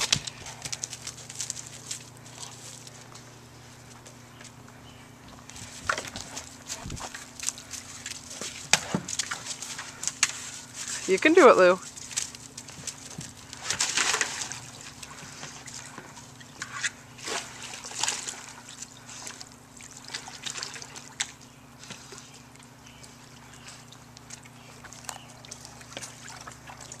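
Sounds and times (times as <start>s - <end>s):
water sloshing: 5.6s - 27.0s
dog splashing into pool: 5.8s - 22.3s
water gently lapping: 5.8s - 27.0s.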